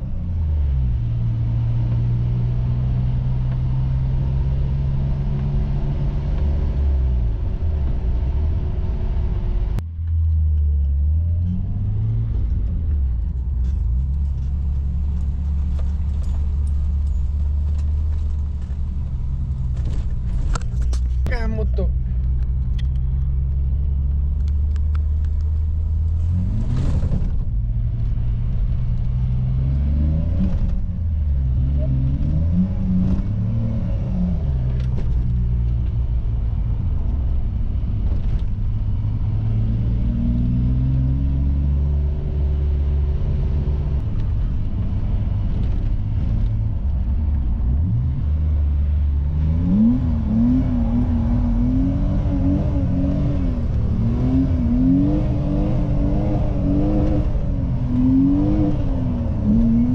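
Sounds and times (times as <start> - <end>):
car engine revving from inside cabin: 29.0 - 35.6, 39.3 - 44.0, 47.7 - 59.9.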